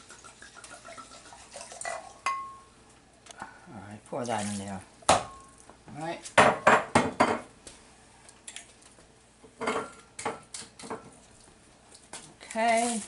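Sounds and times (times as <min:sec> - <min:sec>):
knocks and clinks on countertop: 0:06.4 - 0:07.5, 0:09.6 - 0:11.1.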